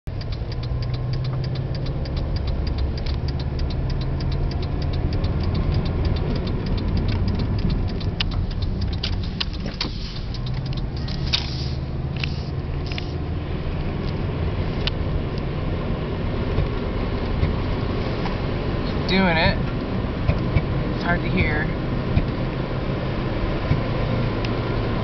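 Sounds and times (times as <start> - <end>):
car engine at low revs: 0.0 - 25.0
quick even ticking: 0.1 - 13.2.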